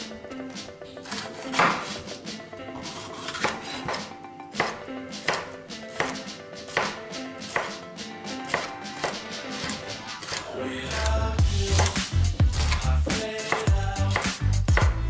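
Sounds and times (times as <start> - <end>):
knife slicing on wooden board: 2.8 - 7.7, 8.4 - 10.5, 11.7 - 12.8.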